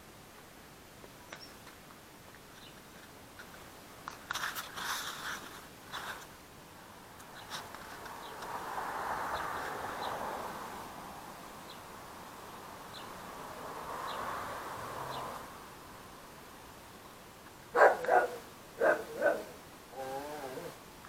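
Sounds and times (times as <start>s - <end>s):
dog barking: 17.7s - 19.6s.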